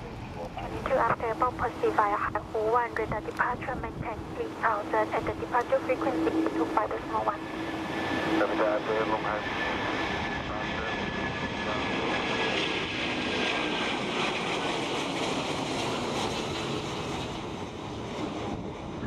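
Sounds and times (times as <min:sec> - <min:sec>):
faint high jet whine: 0:00.0 - 0:19.0
jet engine roar: 0:00.0 - 0:19.0.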